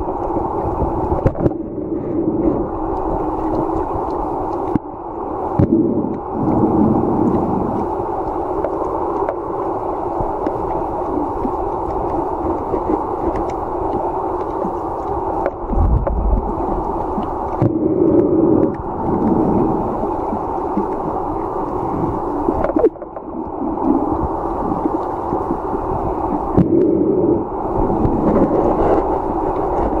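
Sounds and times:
muffled underwater rushing water: 0:00.0 - 0:30.0.

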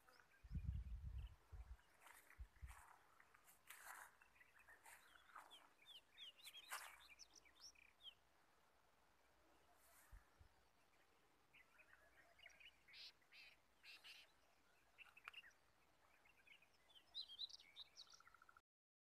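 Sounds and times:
faint birds chirping: 0:00.0 - 0:18.6.

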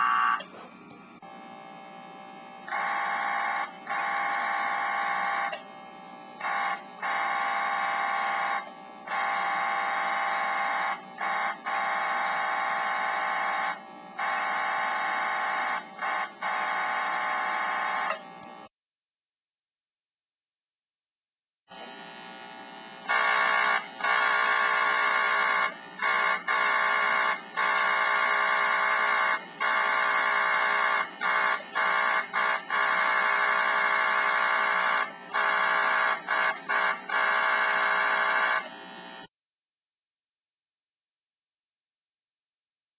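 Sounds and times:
toy train electronic whistle blasts: 0:00.0 - 0:00.5, 0:02.6 - 0:05.7, 0:06.4 - 0:18.3, 0:23.0 - 0:39.2.

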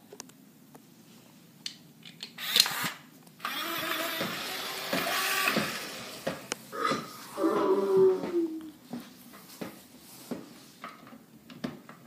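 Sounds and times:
toy robot motor whirring: 0:02.4 - 0:06.2.

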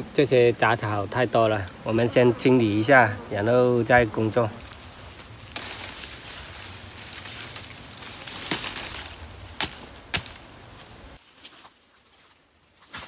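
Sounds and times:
dry brush rustling and crackling: 0:02.6 - 0:13.0
sharp cracks of stems: 0:05.2 - 0:11.6.

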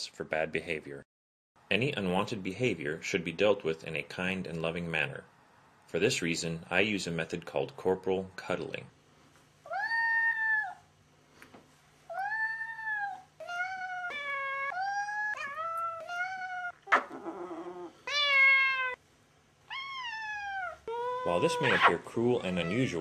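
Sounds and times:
cat meowing: 0:09.7 - 0:10.9, 0:12.1 - 0:19.0, 0:19.7 - 0:23.0.

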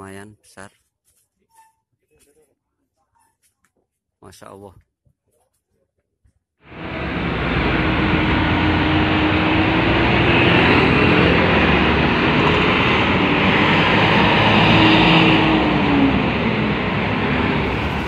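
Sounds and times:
traffic passing: 0:06.7 - 0:18.0.

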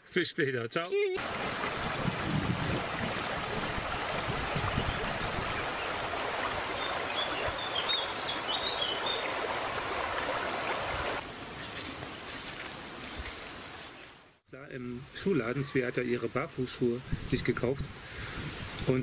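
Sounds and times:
river flowing over stones: 0:01.2 - 0:11.2
bird chirping: 0:06.7 - 0:09.4.

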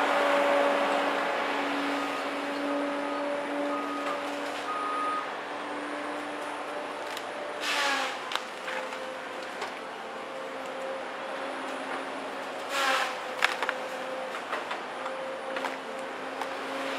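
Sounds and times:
saw cutting into tree: 0:07.6 - 0:08.4, 0:12.7 - 0:13.3.

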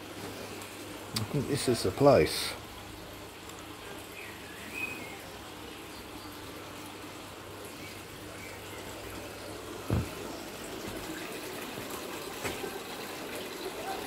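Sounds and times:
water feature trickling: 0:00.0 - 0:14.0
dull thump: 0:09.8 - 0:10.2.

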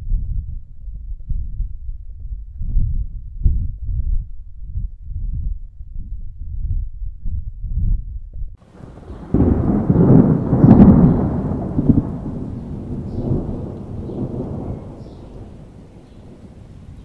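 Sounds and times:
thunderclap rumbling: 0:08.6 - 0:17.0.

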